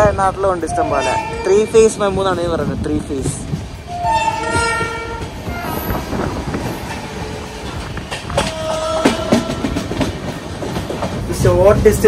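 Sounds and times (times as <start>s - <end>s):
electric train passing: 0.0s - 12.0s
wheels clicking over rail joints: 2.7s - 12.0s
train horn: 3.9s - 5.9s.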